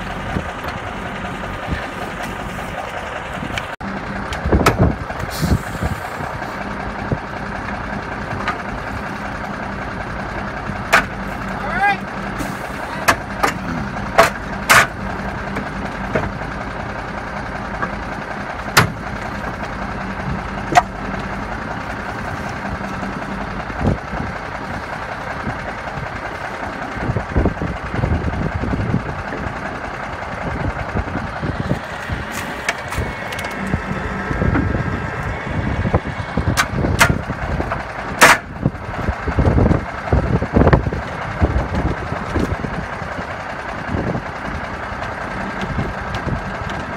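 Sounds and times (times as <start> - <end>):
truck engines idling: 0.0 - 46.9
sharp metallic knocks: 18.7 - 19.1.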